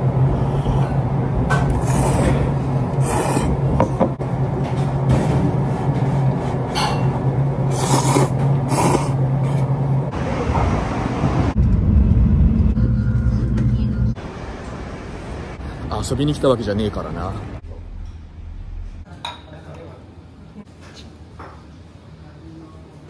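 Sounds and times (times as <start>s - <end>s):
steady low hum: 0.0s - 16.6s
person slurping noodles: 1.7s - 3.8s, 7.7s - 9.7s
low rumble: 10.0s - 15.6s.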